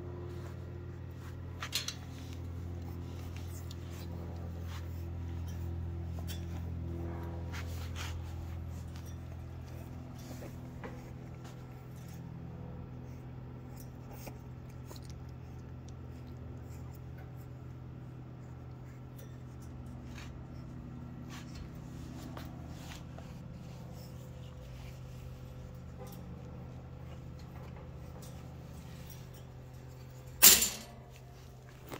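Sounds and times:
electric fan humming: 0.0s - 31.9s
puppy claws on wire floor: 1.2s - 31.9s.

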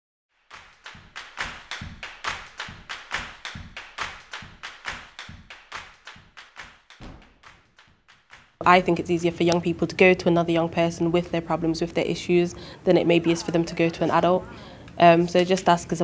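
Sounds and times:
sharp claps or taps: 0.5s - 8.6s
low thumps: 7.0s - 7.8s.

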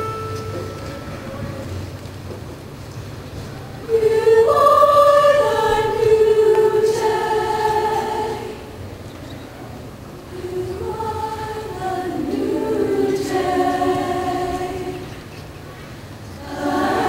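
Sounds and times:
women's choir singing in harmony: 3.8s - 9.0s, 10.3s - 15.4s, 16.0s - 17.0s.

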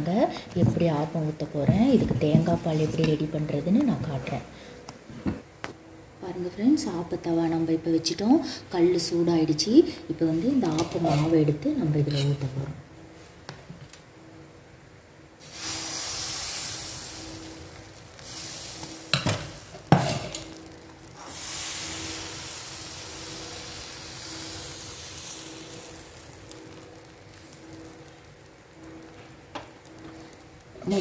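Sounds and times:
batter sizzling in a hot pan: 15.4s - 31.0s.

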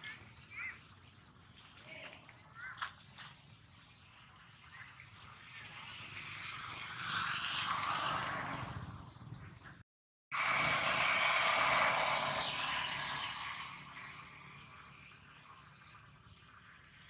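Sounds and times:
steady rushing noise: 5.3s - 17.0s.

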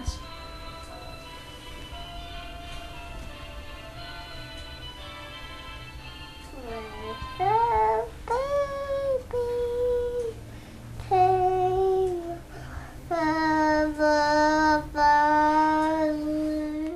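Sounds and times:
child singing long notes: 6.6s - 10.4s, 11.0s - 12.5s, 13.1s - 16.9s.

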